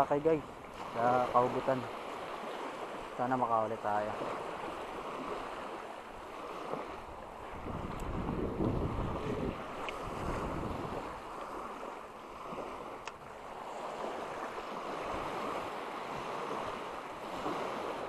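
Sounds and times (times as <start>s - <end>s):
small waves breaking on shore: 0.0s - 18.0s
wind buffeting microphone: 4.0s - 18.0s.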